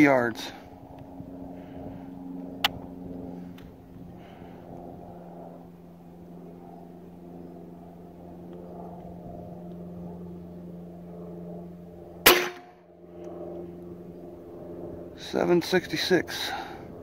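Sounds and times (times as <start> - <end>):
steady low hum: 0.0 - 17.0
air rifle shot: 12.2 - 12.7.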